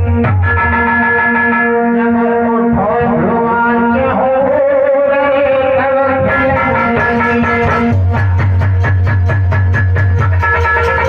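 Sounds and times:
keyboard melody: 0.0s - 11.0s
hand drum strokes: 6.3s - 11.0s.

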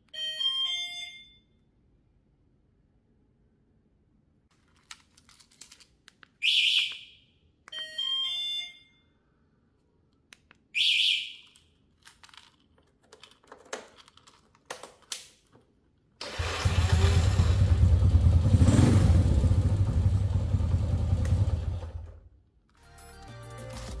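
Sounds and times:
alarm chirps: 10.8s - 11.4s.

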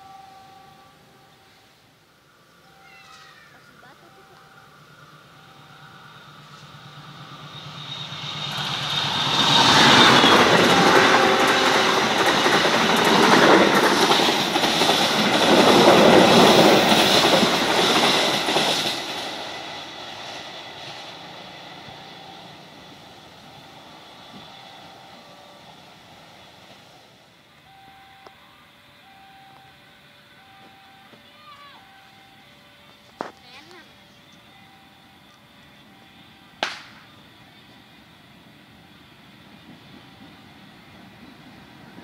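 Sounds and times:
train wheels clattering over rails: 6.3s - 22.0s.

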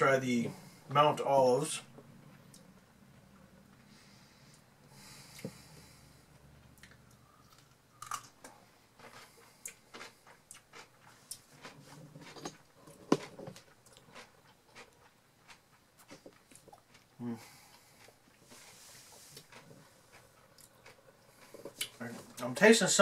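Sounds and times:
person chewing crunchy pickle: 5.8s - 22.4s.

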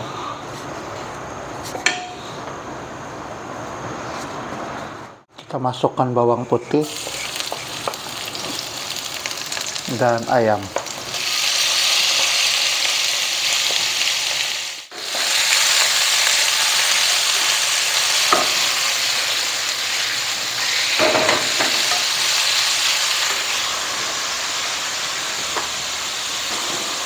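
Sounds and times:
food sizzling in hot oil: 6.8s - 27.0s.

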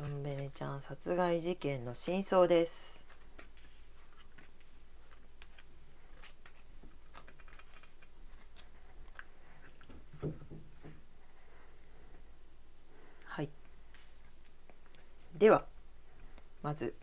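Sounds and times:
low steady hum: 0.0s - 17.0s
cards sliding: 3.0s - 10.0s.

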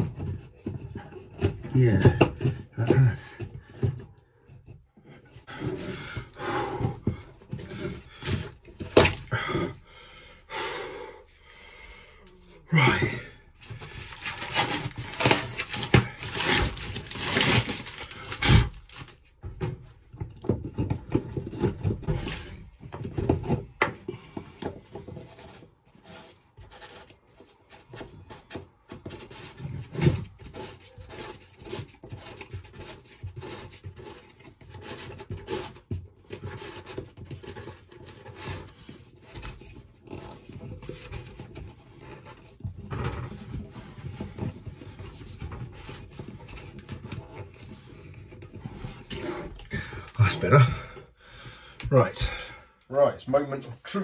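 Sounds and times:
hand scraping and rubbing: 12.6s - 19.4s.

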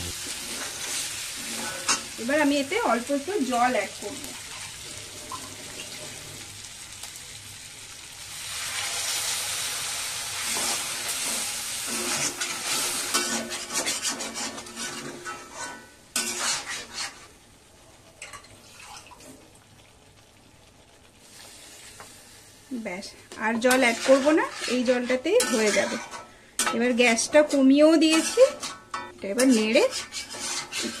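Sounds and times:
food sizzling in a pan: 0.0s - 31.0s
spatula scraping iron pan: 0.5s - 2.1s, 10.5s - 17.3s, 23.6s - 31.0s
water poured into hot pan: 4.3s - 13.3s, 18.2s - 22.8s.

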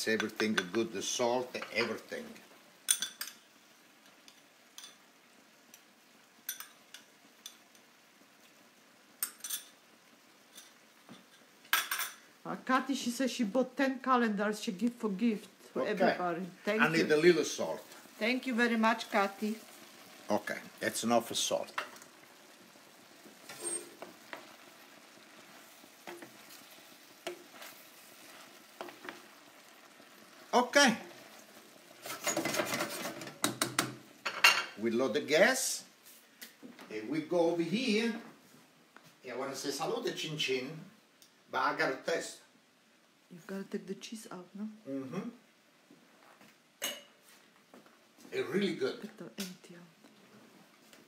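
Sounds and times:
faint sizzle: 0.0s - 51.0s
wooden spoon stirring in pan: 15.4s - 35.4s
spoon knocking against pan: 33.2s - 34.7s.

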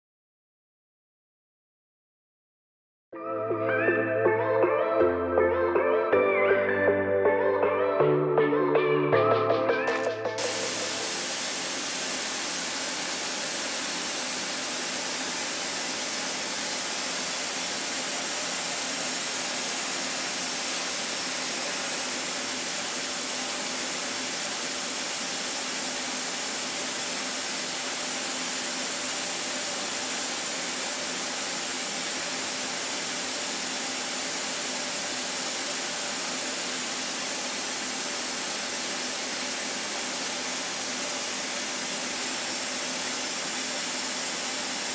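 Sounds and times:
milling machine cutting metal: 10.4s - 44.9s.

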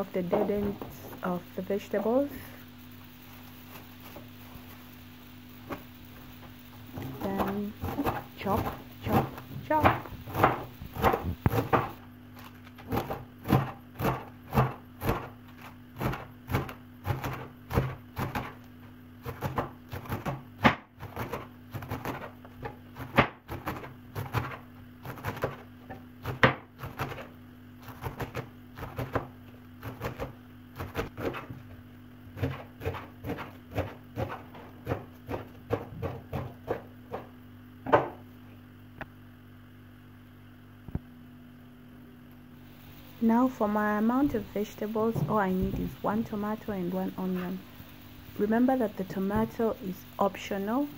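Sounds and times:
knife chopping on wooden board: 7.0s - 12.0s, 19.2s - 31.6s, 32.4s - 37.3s.

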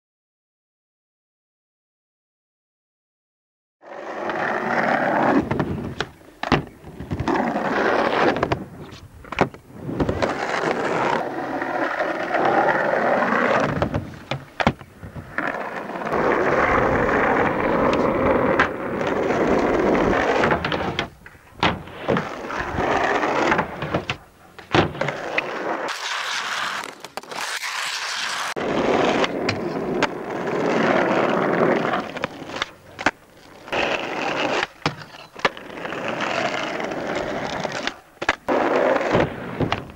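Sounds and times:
skateboard wheels rolling: 3.8s - 39.9s
skateboard knocks and clacks: 17.8s - 25.5s, 37.1s - 39.9s.

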